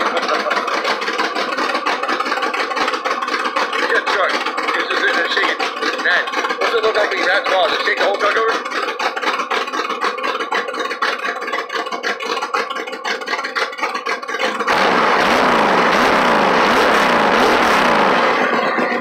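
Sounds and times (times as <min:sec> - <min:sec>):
pickup engine revving: 0:00.0 - 0:19.0.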